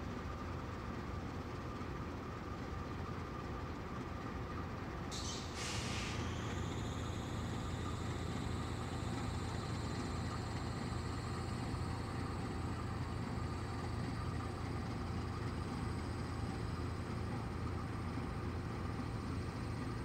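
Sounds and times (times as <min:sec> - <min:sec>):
locomotive engine idling: 0:00.0 - 0:20.0
faint high whine: 0:05.2 - 0:20.0.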